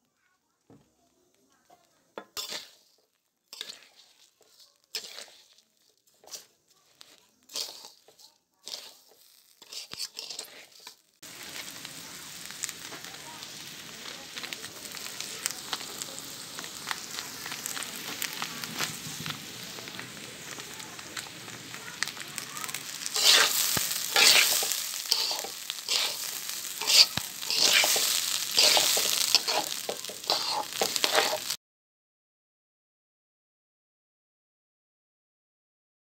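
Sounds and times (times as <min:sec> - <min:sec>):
rice sizzling and crackling: 0:00.0 - 0:31.6
rice stirred in a pot: 0:00.7 - 0:31.6.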